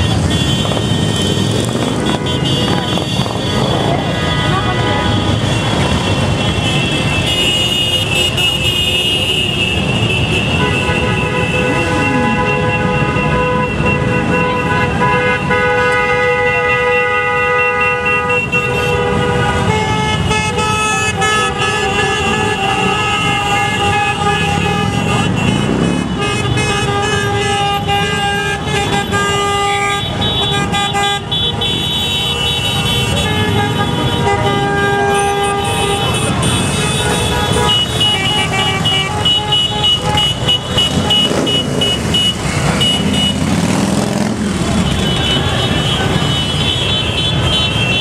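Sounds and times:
motorcycle engines running: 0:00.0 - 0:07.3, 0:35.2 - 0:48.0
horns sounding: 0:00.0 - 0:48.0
motorcycle engine revving: 0:40.6 - 0:46.3.

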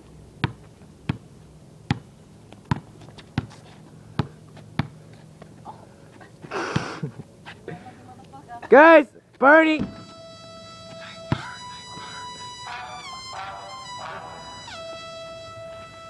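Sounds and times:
basketball bouncing on concrete: 0:00.4 - 0:01.2, 0:01.9 - 0:03.6, 0:04.2 - 0:05.5.

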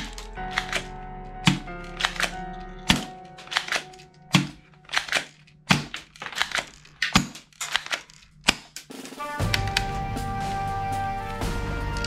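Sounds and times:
faint music: 0:00.0 - 0:05.3, 0:08.9 - 0:12.0.

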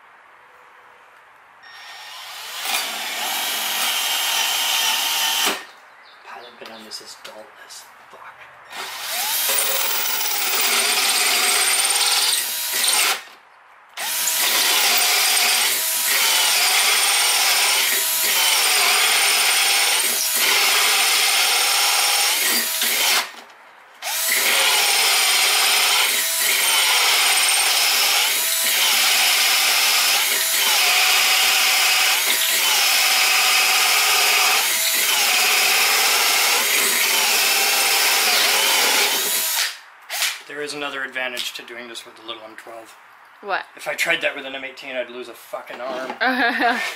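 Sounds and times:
drill hole saw cutting wood: 0:01.6 - 0:05.7, 0:08.7 - 0:13.3, 0:14.0 - 0:23.4, 0:24.0 - 0:40.4.

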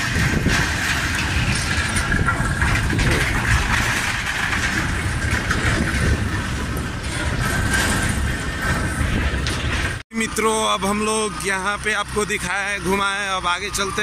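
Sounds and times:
traffic rumbling over steel bridge: 0:00.0 - 0:14.0.

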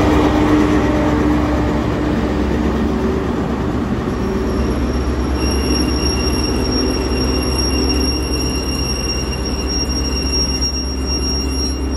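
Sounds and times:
high-pitched whine: 0:04.2 - 0:11.9.

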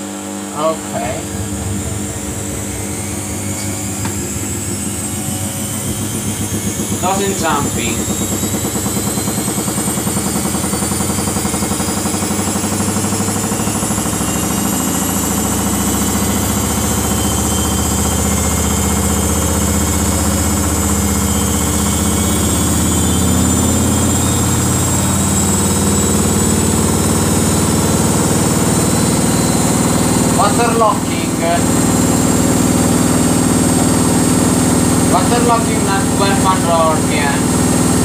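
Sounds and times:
low hum: 0:00.4 - 0:12.2, 0:28.4 - 0:38.0
washing machine drum spinning: 0:00.8 - 0:38.0.

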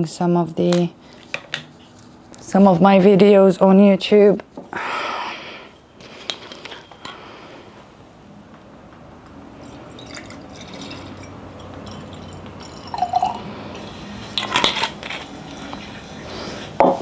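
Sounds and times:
wine pouring into a glass: 0:09.6 - 0:13.9.

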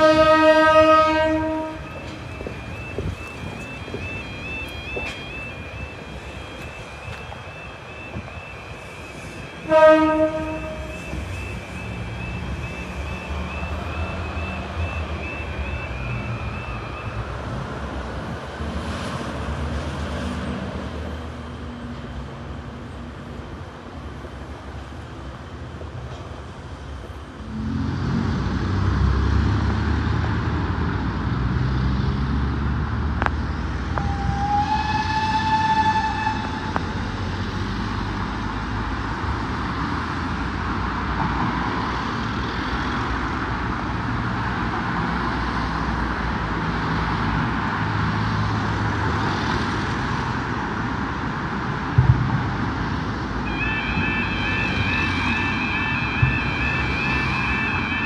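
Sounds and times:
vehicle horn: 0:00.0 - 0:02.2, 0:09.6 - 0:11.5, 0:53.4 - 0:58.0
warbling crossing alarm: 0:00.0 - 0:17.9, 0:33.9 - 0:36.9, 0:53.4 - 0:58.0
road traffic rumbling: 0:00.0 - 0:58.0.

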